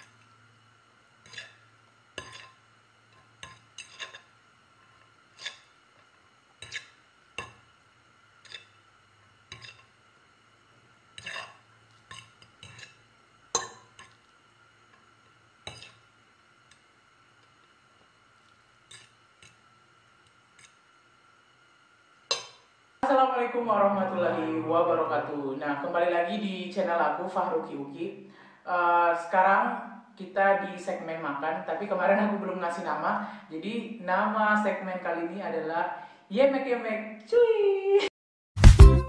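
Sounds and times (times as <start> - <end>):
faint steady hum: 0.0 - 38.1
cutlery and dishes clinking: 9.5 - 9.9, 11.2 - 13.0, 15.7 - 16.0.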